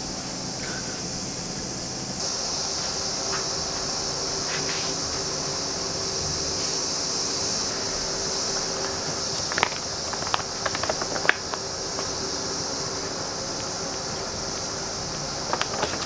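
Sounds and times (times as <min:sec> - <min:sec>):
steady high hiss: 0:00.0 - 0:16.0
magazine pages crackling: 0:08.4 - 0:12.1, 0:15.4 - 0:16.0.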